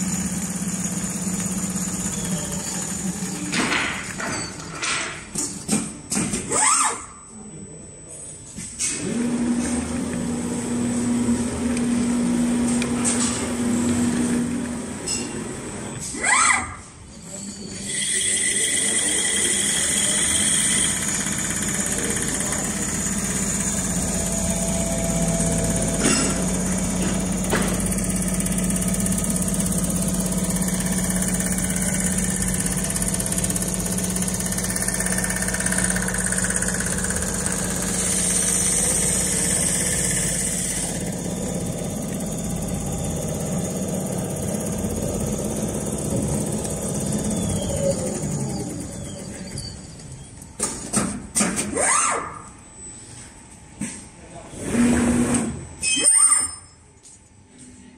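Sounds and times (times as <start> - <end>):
sewing machine humming: 0.0 - 4.2, 17.9 - 49.9.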